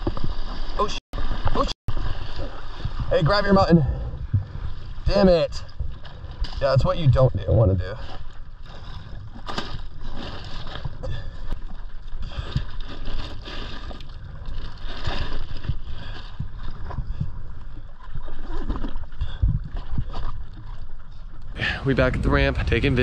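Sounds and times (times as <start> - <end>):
water slapping against hull: 0.0 - 21.6
wind buffeting microphone: 2.6 - 8.1, 21.5 - 23.0.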